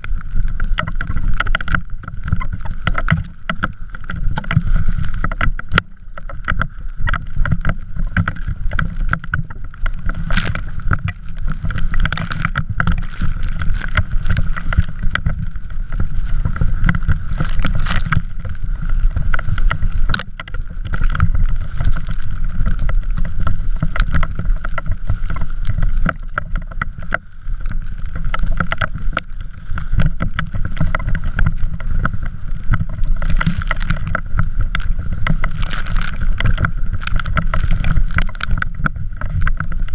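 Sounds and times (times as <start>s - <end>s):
wheels scraping over snow: 0.0s - 39.9s
wind rumble on microphone: 0.0s - 39.9s.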